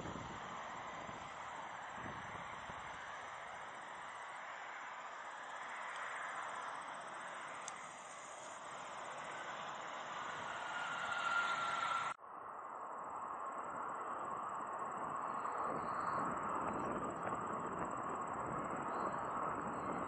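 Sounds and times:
distant jet engine rush: 0.0s - 20.0s
jet engine whine: 0.0s - 20.0s.

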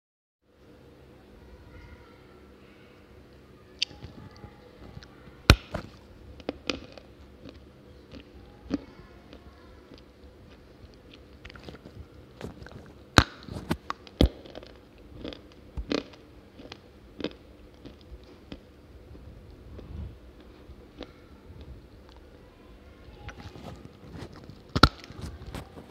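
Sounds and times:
crunchy chewing: 3.8s - 22.4s, 23.0s - 25.9s
clay chunks cracking: 5.5s - 8.8s, 9.9s - 18.6s, 23.2s - 25.8s.

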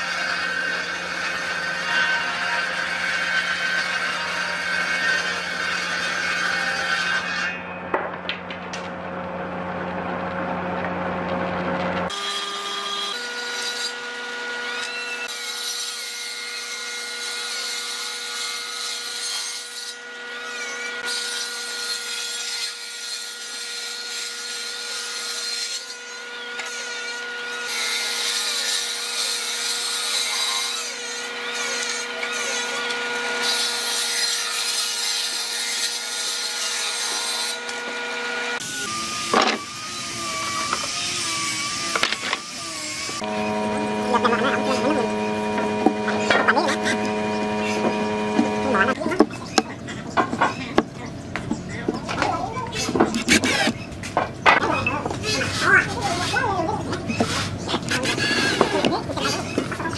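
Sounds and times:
table saw ripping boards: 12.0s - 49.6s, 52.8s - 53.8s, 57.1s - 59.9s
low machine hum: 37.6s - 59.9s.

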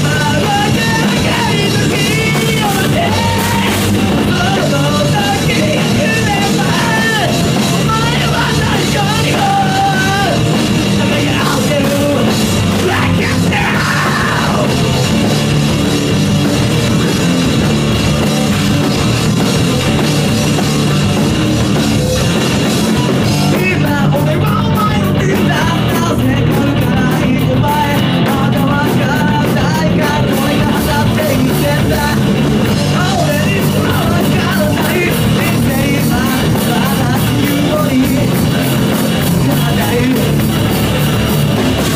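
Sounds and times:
person singing: 0.0s - 15.2s, 22.6s - 40.7s
drum kit: 0.0s - 41.9s
electric bass: 0.0s - 41.9s
electric guitar: 0.0s - 41.9s.

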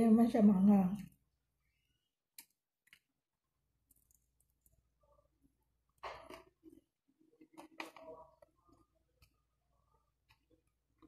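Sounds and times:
crispy chicken crackling: 3.8s - 5.3s.

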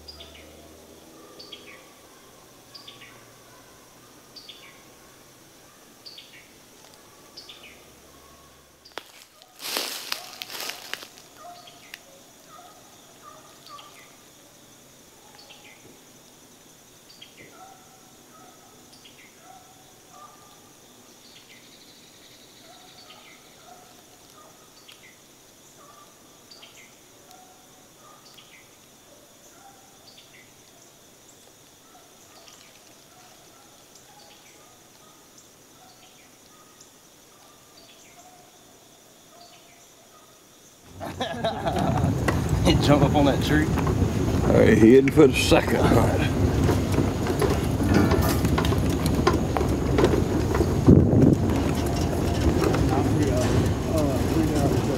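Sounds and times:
bird calls and chirps: 0.0s - 3.7s, 4.3s - 4.9s, 6.0s - 14.2s, 15.2s - 15.9s, 17.1s - 28.8s, 29.4s - 38.5s
insects droning: 0.0s - 54.9s.

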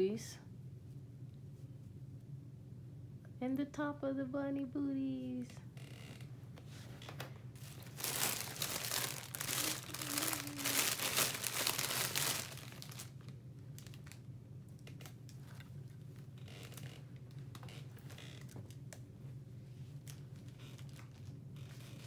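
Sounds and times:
packaging crinkling and rustling: 7.0s - 14.2s, 16.4s - 18.8s, 20.0s - 22.0s.

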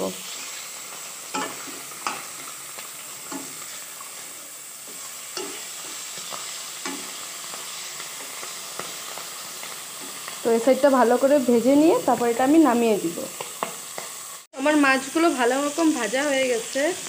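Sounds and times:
fish sizzling in oil: 0.0s - 17.0s
spatula scraping and tapping pan: 1.3s - 4.2s, 4.8s - 10.4s, 13.3s - 14.3s.

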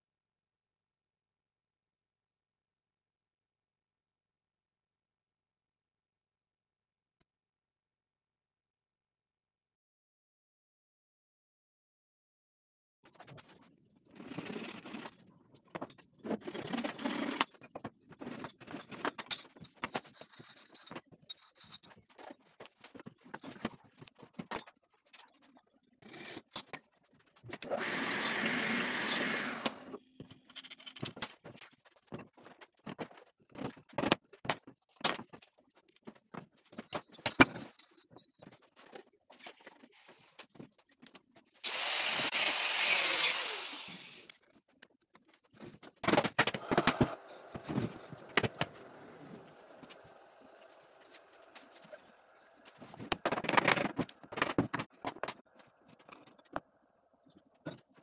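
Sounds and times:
wood scraping: 46.5s - 55.4s.

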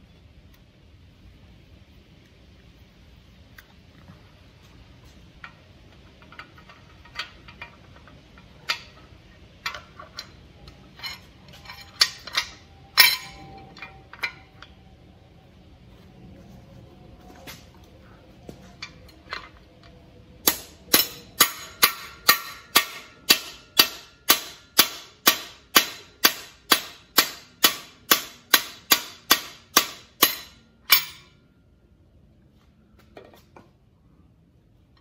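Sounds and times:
hammer striking metal tool: 11.7s - 14.5s, 20.4s - 31.4s.

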